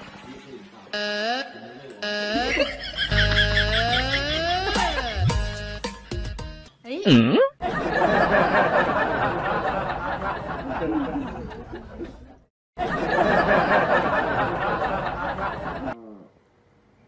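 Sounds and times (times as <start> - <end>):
crowd laughing and chattering: 7.6 - 16.0.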